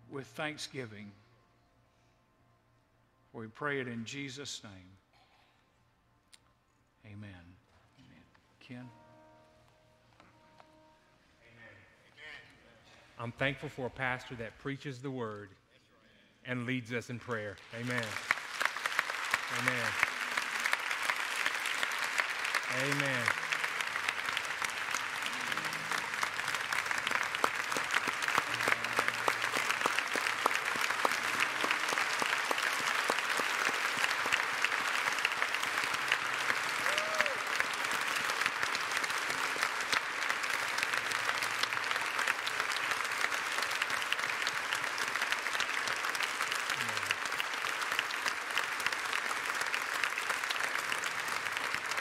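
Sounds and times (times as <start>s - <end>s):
crowd applauding: 17.2s - 52.0s.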